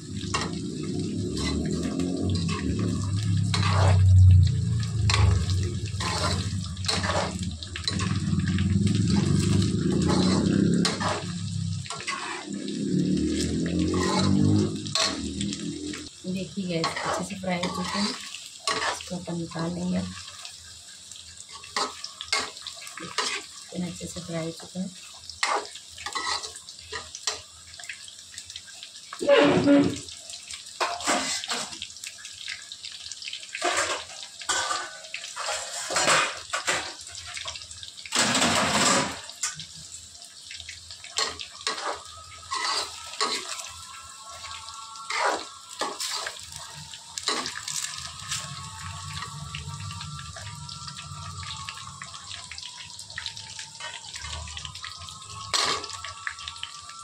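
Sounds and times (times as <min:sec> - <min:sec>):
food sizzling in oil: 0:00.0 - 0:57.0
spoon scraping and knocking pan: 0:09.2 - 0:11.3, 0:41.2 - 0:43.7.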